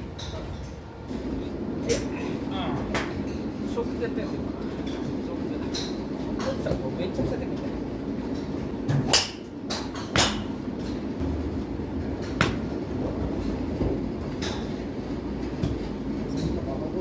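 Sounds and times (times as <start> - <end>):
low rumble of ambience: 0.0 - 17.0
golf club striking ball: 8.9 - 10.5.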